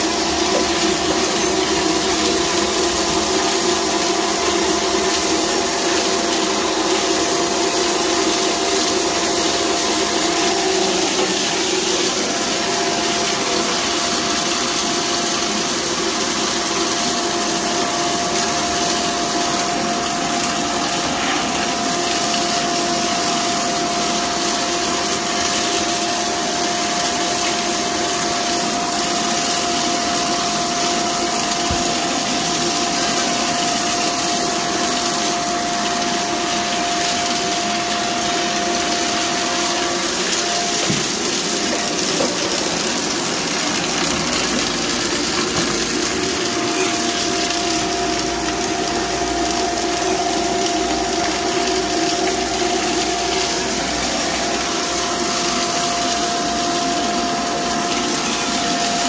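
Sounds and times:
vacuum cleaner running: 0.0 - 59.0.

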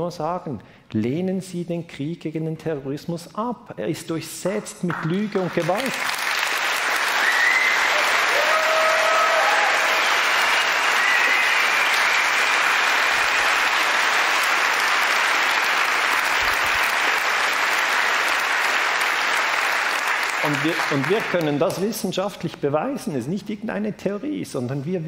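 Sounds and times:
audience applauding: 4.9 - 22.0.

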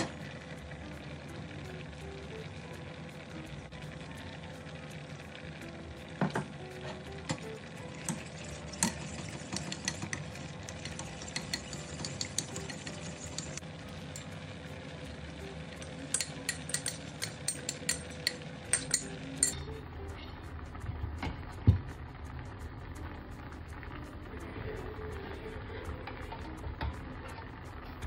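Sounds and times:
spoon clinking against bowl: 8.1 - 13.6, 16.1 - 19.6
spoon stirring in ceramic bowl: 8.1 - 14.3, 16.1 - 19.6
clinks and taps on steel pan: 16.1 - 19.6.

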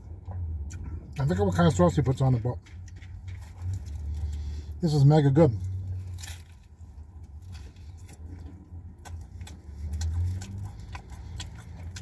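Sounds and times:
man chewing food: 0.0 - 1.2, 2.6 - 4.8, 5.6 - 12.0
mouth clicks and smacks: 8.1 - 12.0.

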